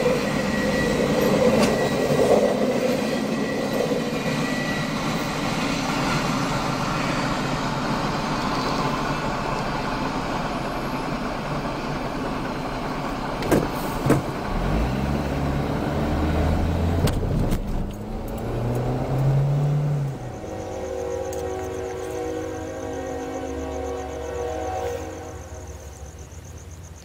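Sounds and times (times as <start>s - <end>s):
car engine accelerating: 14.1s - 20.4s.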